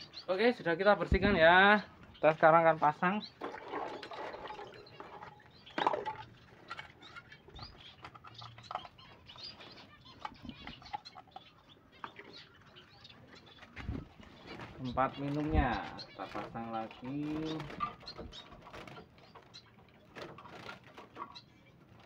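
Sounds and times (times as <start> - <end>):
finches chirping: 0.0 - 22.0
wings fluttering: 13.3 - 22.0.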